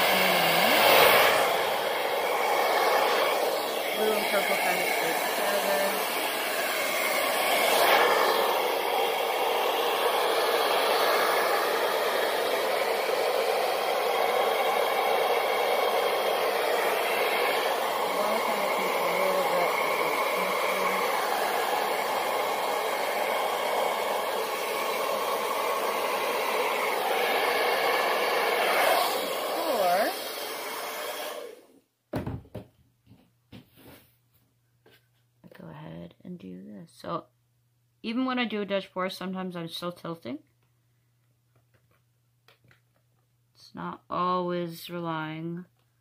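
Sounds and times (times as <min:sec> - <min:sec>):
hair dryer running: 0:00.0 - 0:31.8.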